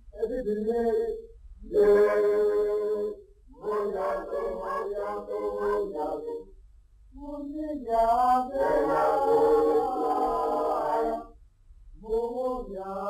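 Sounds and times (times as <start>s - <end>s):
unaccompanied singing: 0.2s - 6.5s, 7.2s - 11.3s, 12.0s - 13.0s.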